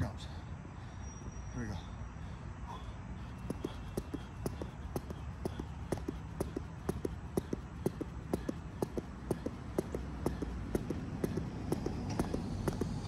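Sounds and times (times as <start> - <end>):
feet landing: 3.3 - 13.0
jump rope slapping mat: 3.4 - 13.0.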